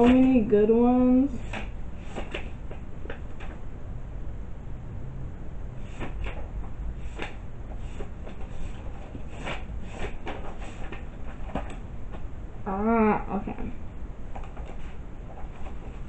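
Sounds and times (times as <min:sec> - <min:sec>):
low steady rumble: 0:00.0 - 0:16.0
handling knocks and rustles: 0:05.9 - 0:12.3.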